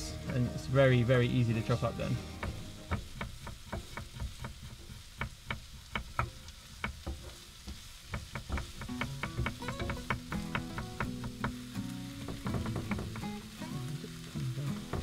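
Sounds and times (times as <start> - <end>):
onions sizzling in a frying pan: 0.0 - 15.0
knife chopping on wooden board: 2.4 - 11.6.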